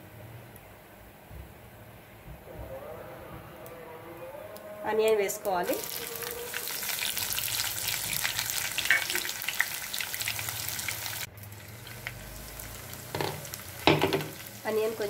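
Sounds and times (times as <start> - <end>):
onions sizzling in hot oil: 5.4 - 15.0
knock: 13.2 - 14.3.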